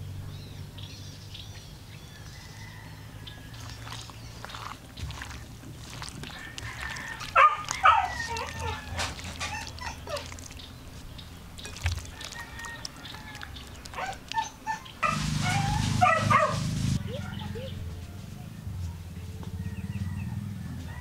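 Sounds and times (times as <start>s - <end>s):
dog yelping: 7.2s - 10.6s, 13.9s - 17.8s.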